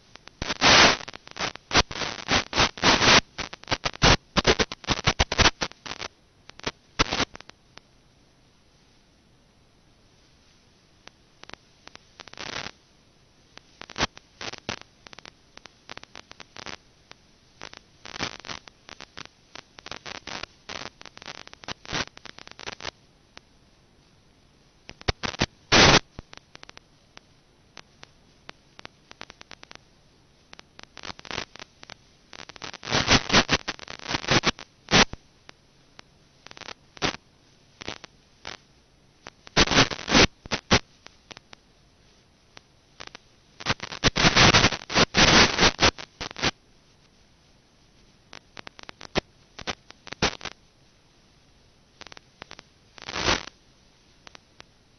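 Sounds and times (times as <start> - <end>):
static crackle and pops: 0.0 - 54.9
bursts of hiss: 0.4 - 7.4, 24.9 - 26.8, 30.8 - 35.2, 39.2 - 41.2, 43.0 - 46.5, 52.0 - 53.5.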